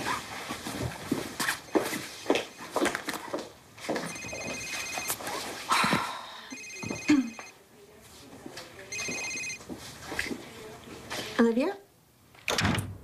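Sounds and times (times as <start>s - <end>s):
mobile phone ringing: 1.7s - 3.1s, 3.9s - 5.3s, 6.5s - 7.6s, 8.9s - 9.6s.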